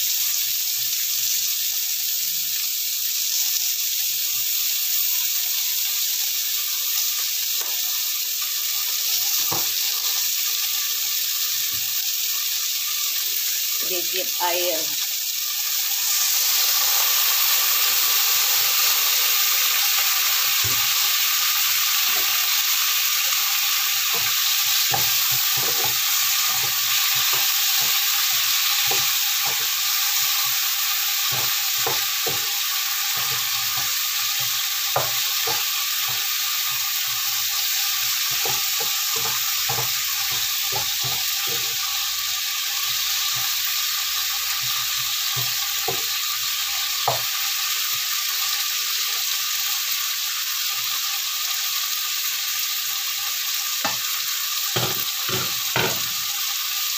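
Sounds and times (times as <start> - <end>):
vegetables sizzling in frying pan: 0.0 - 56.9
spatula tapping and scraping pan: 9.4 - 9.8, 24.1 - 41.9, 44.5 - 46.2, 47.0 - 47.4, 54.8 - 56.2.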